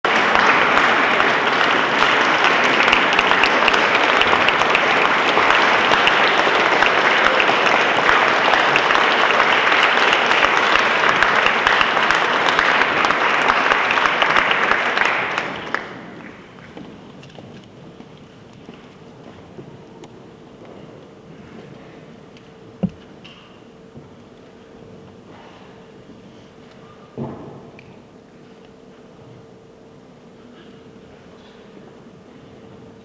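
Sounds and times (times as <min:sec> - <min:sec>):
audience applauding: 0:00.0 - 0:16.8.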